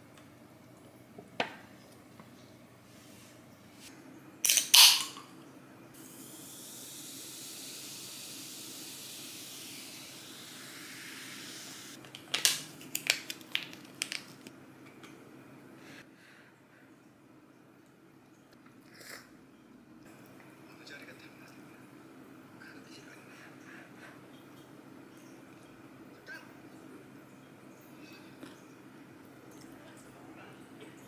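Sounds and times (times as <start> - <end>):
drink can popping open: 4.4 - 5.2, 12.0 - 14.5
drink pouring into glass: 4.4 - 5.2
packet tearing and crinkling: 12.1 - 14.5.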